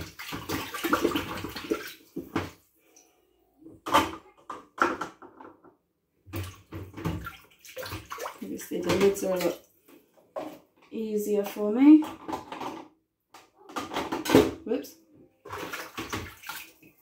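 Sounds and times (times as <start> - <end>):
water splashing in a metal sink: 0.0 - 3.1, 6.2 - 10.7, 15.4 - 17.0.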